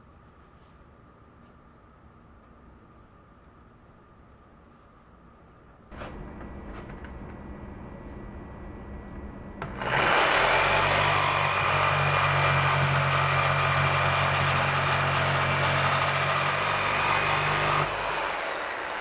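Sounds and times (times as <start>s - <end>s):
jigsaw motor hum: 9.6s - 19.0s.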